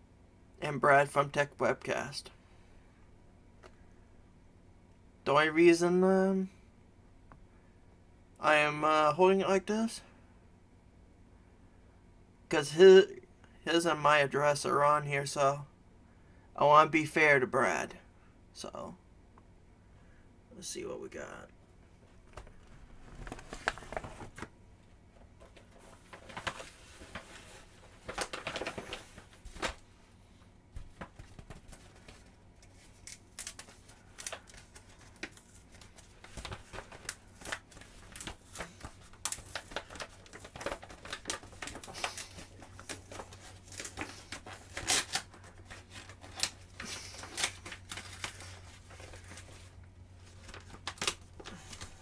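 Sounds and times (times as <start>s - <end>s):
packaging torn and crinkled: 32.6s - 49.5s.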